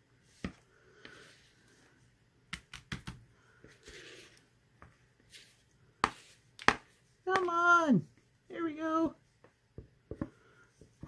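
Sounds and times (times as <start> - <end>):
spatula tapping plastic bowl: 6.0 - 7.6.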